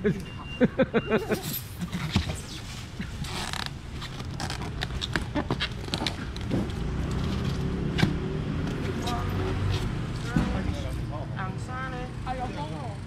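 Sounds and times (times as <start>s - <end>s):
styrofoam lid creaking and squeaking: 3.2s - 6.5s.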